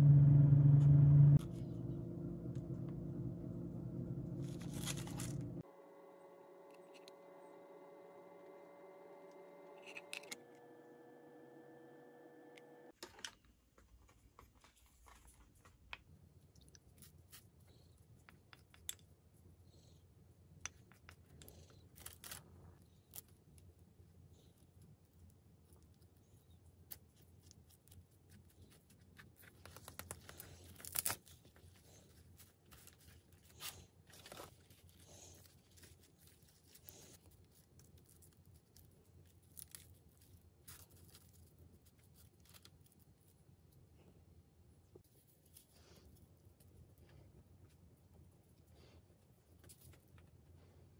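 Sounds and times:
paper crackle: 4.3 - 5.6, 27.0 - 43.4.

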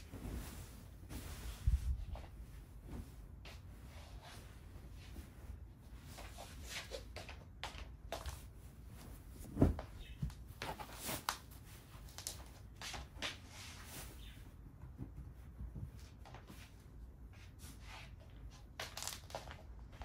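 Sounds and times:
rustling: 0.0 - 7.1, 8.2 - 14.5.

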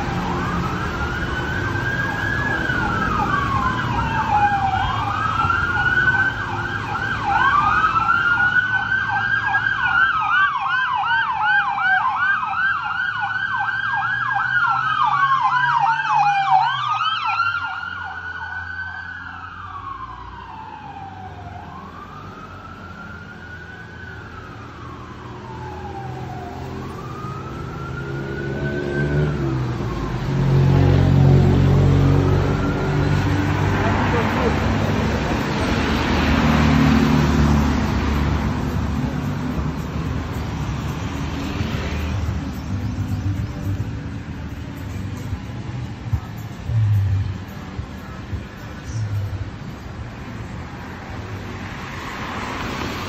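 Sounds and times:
siren yelping tone: 0.0 - 33.4
siren wailing: 0.0 - 40.1
low traffic rumble: 0.0 - 53.0.

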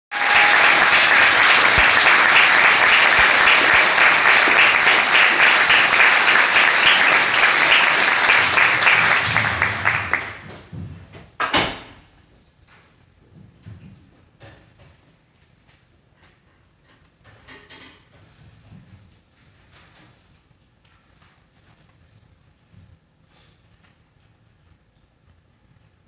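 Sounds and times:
audience applauding: 0.1 - 10.6.

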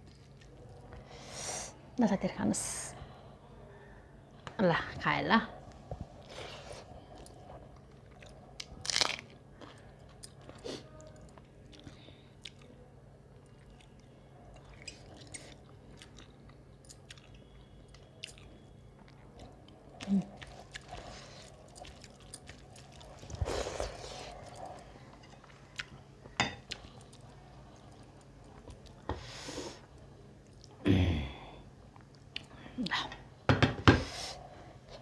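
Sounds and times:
person chewing and lip-smacking: 7.2 - 12.8, 13.4 - 24.6.

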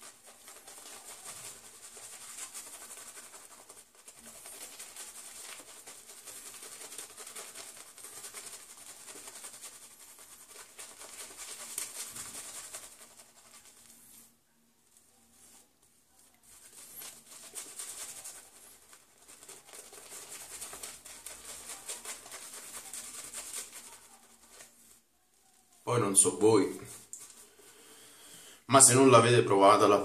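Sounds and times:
shaving brush swishing through foam: 0.0 - 14.4, 16.4 - 25.0.

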